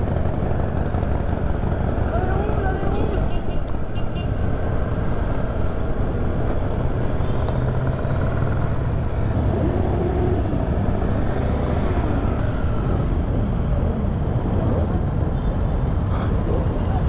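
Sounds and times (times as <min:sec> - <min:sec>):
motorcycle engines rumbling: 0:00.0 - 0:17.0
motorcycle passing by: 0:04.9 - 0:13.3.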